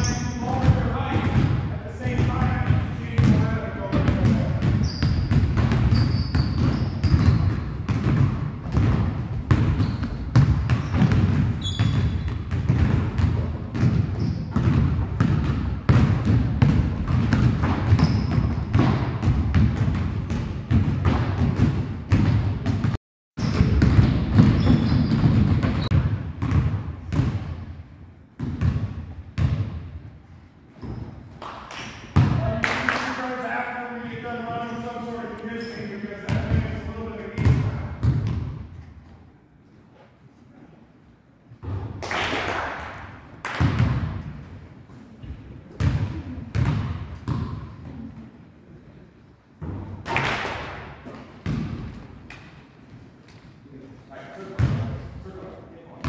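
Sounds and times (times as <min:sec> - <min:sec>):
shoe squeaks: 0:00.0 - 0:00.5, 0:04.8 - 0:07.8, 0:09.7 - 0:12.3, 0:14.1 - 0:14.6, 0:17.9 - 0:18.6, 0:23.4 - 0:23.7, 0:24.4 - 0:26.0, 0:35.5 - 0:36.0
basketballs bouncing on wood floor: 0:00.0 - 0:27.7, 0:28.4 - 0:29.9, 0:32.1 - 0:32.6, 0:37.4 - 0:38.7, 0:43.5 - 0:44.3, 0:45.7 - 0:47.7, 0:51.1 - 0:52.0, 0:54.6 - 0:55.0.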